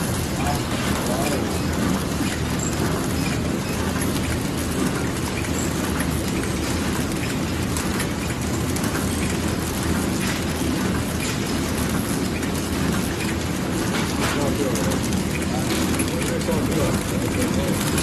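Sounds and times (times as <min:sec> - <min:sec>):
packaging machine clattering: 0:00.0 - 0:18.0.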